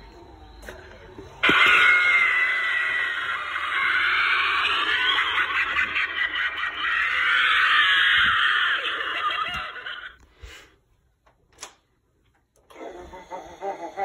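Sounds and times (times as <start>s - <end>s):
tinny speaker shrieking: 1.4s - 9.7s.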